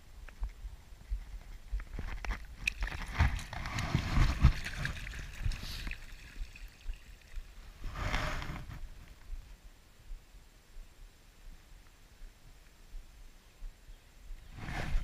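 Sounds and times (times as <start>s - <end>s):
creek water sloshing and splashing: 2.2s - 7.6s.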